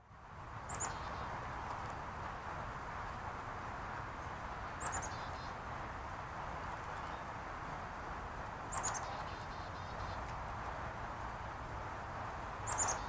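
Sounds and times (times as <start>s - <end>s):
songbird calling: 0.7s - 1.3s, 4.8s - 5.6s, 8.7s - 10.3s, 12.6s - 13.0s.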